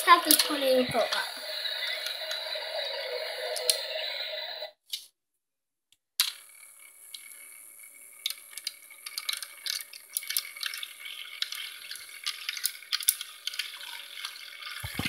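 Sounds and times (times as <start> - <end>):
small motor whine: 6.4 - 15.0.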